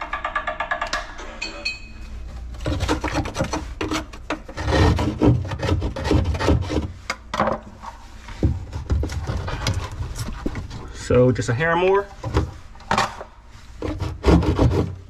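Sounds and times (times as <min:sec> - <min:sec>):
hand saw rasping through drywall: 0:02.6 - 0:07.0, 0:13.8 - 0:15.0.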